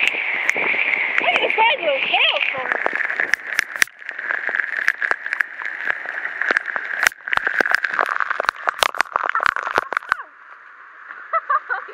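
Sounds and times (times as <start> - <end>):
heavy rain hiss: 0.0 - 10.2
hailstones clicking on surfaces: 1.3 - 10.2.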